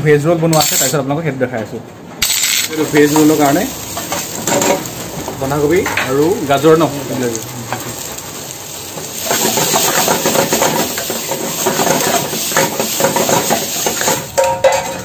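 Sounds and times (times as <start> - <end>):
vegetables sizzling in a pan: 2.3 - 15.0
metal spatula scraping a pan: 9.0 - 15.0.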